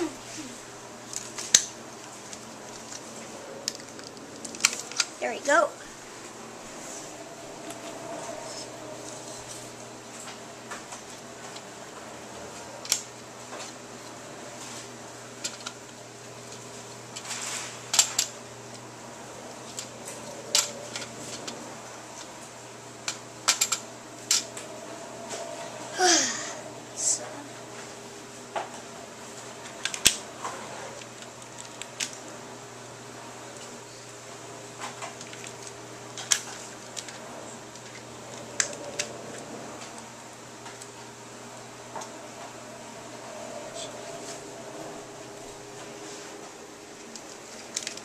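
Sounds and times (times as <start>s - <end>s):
steady low hum: 0.0s - 48.0s
plastic pieces clicking together: 3.7s - 5.1s, 23.1s - 24.4s, 35.2s - 38.0s, 47.1s - 48.0s.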